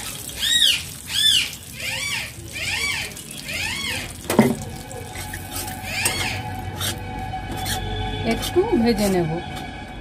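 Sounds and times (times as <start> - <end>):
animal's high squeaky call: 0.4 - 4.1, 5.2 - 7.0.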